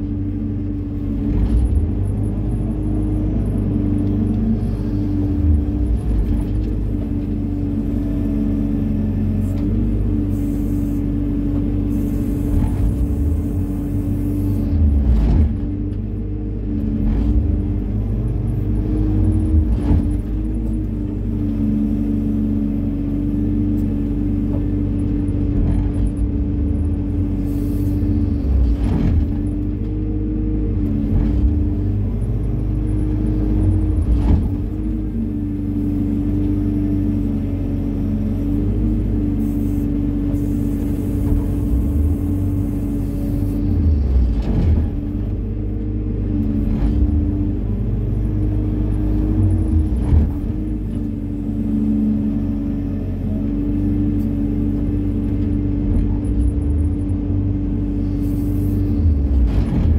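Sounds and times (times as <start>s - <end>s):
excavator diesel engine running: 0.0s - 59.9s
knocks and clunks: 14.8s - 16.1s, 19.2s - 20.8s, 24.5s - 26.8s, 28.4s - 30.0s, 30.8s - 32.2s, 33.5s - 35.1s, 43.9s - 47.5s, 49.2s - 51.1s, 59.2s - 59.9s.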